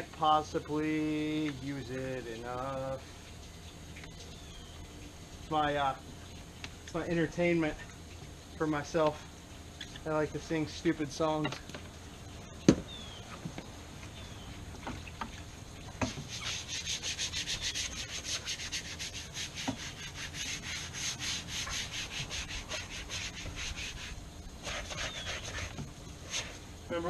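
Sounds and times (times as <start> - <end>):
rapid scrubbing on vinyl: 16.0 - 26.6.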